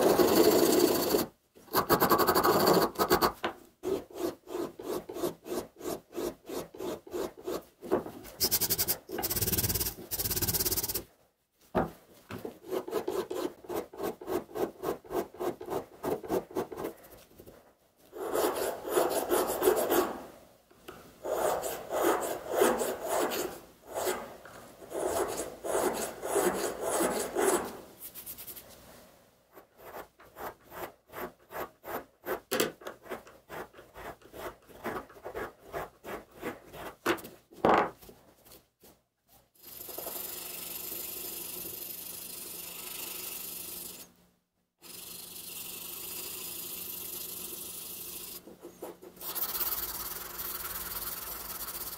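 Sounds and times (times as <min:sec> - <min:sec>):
hand files rasping on steel: 0:00.0 - 0:07.7, 0:18.1 - 0:20.1, 0:24.9 - 0:27.7.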